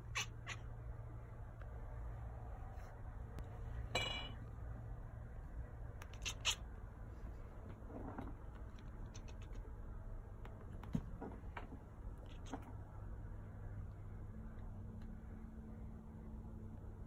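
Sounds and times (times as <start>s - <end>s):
cat chirping and chattering: 0.0s - 0.8s, 6.0s - 6.7s, 8.6s - 9.7s, 12.2s - 12.7s.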